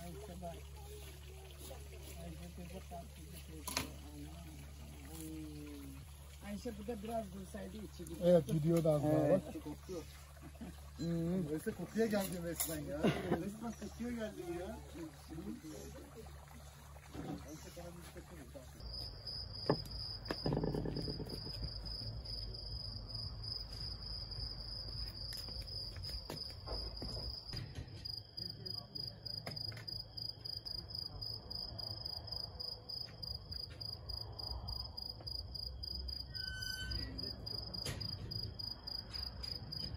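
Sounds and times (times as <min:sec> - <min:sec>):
cricket trilling: 0:18.8 - 0:39.9.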